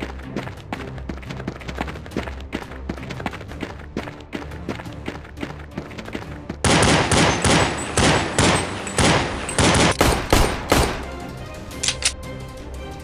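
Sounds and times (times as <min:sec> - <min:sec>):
rapid blaster gunfire: 0:06.6 - 0:11.0.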